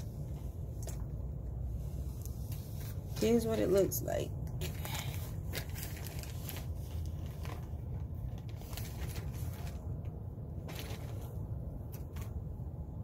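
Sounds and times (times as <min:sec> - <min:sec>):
steady low rumble: 0:00.0 - 0:13.0
plastic bag crinkling: 0:04.5 - 0:12.4.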